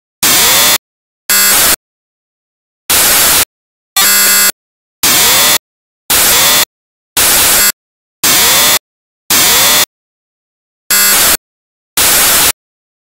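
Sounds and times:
buzzing tone: 0.2s - 1.8s, 2.9s - 9.9s, 10.9s - 11.4s, 12.0s - 12.6s.

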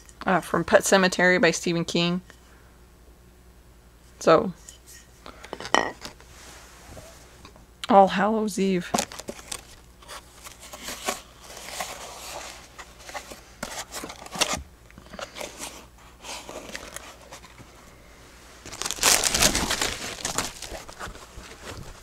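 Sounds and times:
paper and packaging crinkling: 8.8s - 17.8s, 18.6s - 22.0s.

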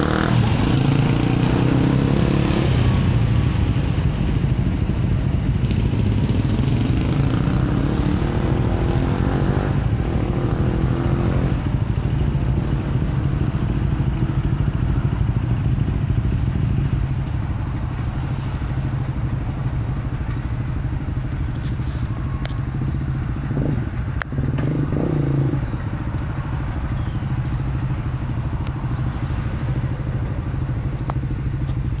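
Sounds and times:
quad bike engines idling: 0.0s - 32.0s.

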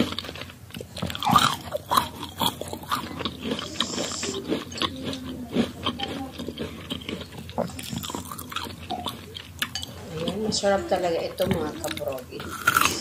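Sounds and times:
crunchy chewing: 0.0s - 13.0s
mouth sounds: 1.2s - 11.0s.

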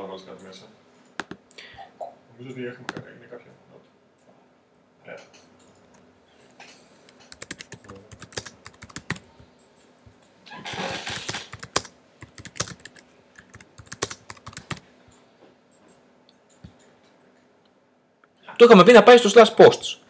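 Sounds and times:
keyboard typing: 7.1s - 9.3s, 10.7s - 14.8s.

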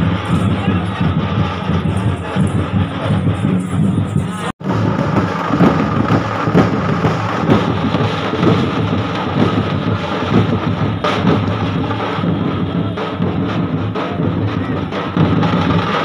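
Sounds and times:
distorted drumming: 0.0s - 16.0s.

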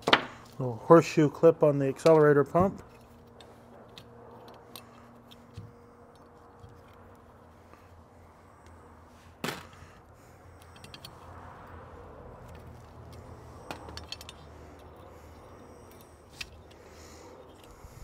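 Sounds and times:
low steady hum: 0.0s - 18.0s
metal parts clinking and tapping: 10.6s - 11.4s, 12.4s - 18.0s
metal parts clicking: 10.6s - 11.8s, 12.4s - 18.0s.

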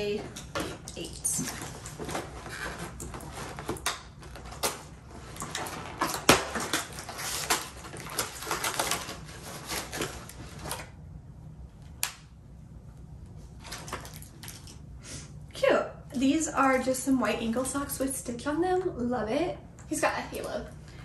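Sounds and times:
paper and plastic crackling: 1.0s - 10.9s.

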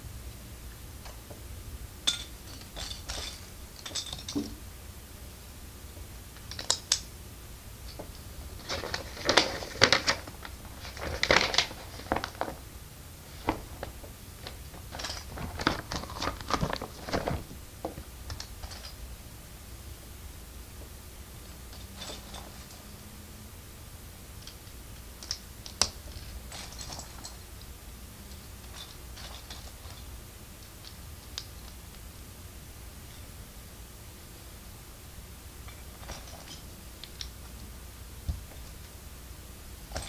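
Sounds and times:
plastic bricks clicking and clattering: 8.6s - 12.6s.

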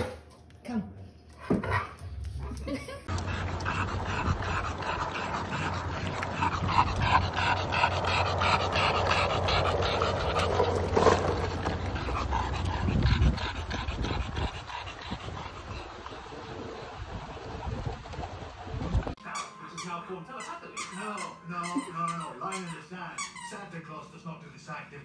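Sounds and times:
dog panting heavily: 3.0s - 18.1s
skateboard wheels rolling on asphalt: 8.9s - 12.6s.

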